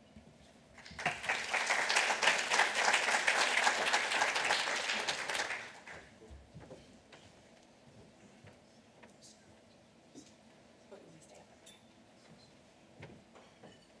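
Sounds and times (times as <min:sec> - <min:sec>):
audience applauding: 0:00.8 - 0:06.1.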